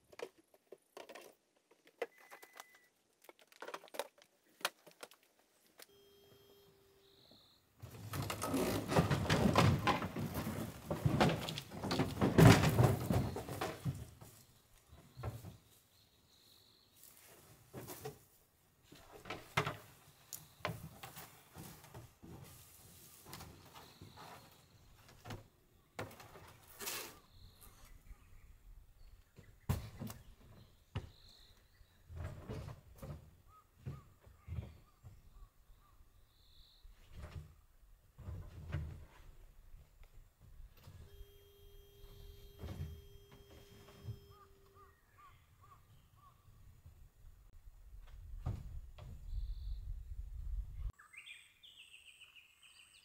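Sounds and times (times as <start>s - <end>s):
rustling and scraping: 0.0s - 5.9s, 7.8s - 16.0s, 16.9s - 28.1s.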